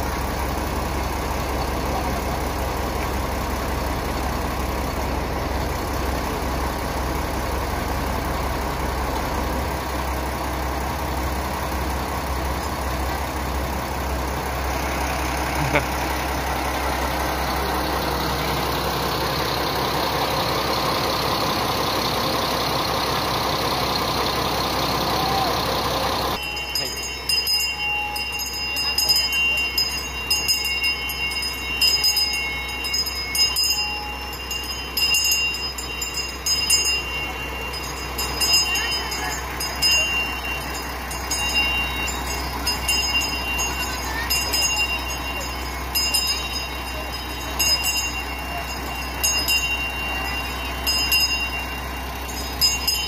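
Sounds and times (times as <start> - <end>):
diesel railcar engine idling: 0.0 - 53.0
light high tones: 13.8 - 53.0.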